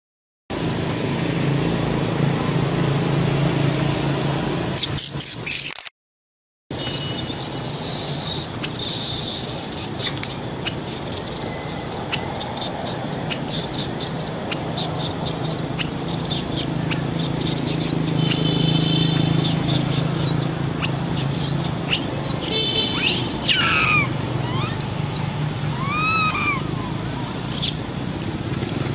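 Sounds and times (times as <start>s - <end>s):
baby monkey squeaking cries: 6.8s - 27.8s.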